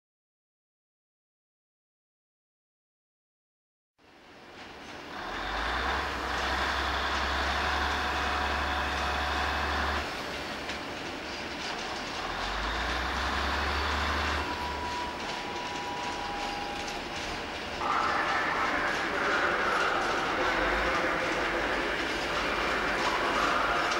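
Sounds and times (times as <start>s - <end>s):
locomotive hum: 4.2s - 23.9s
train wheels clattering on rails: 4.5s - 23.9s
wheel squeal: 11.8s - 18.2s.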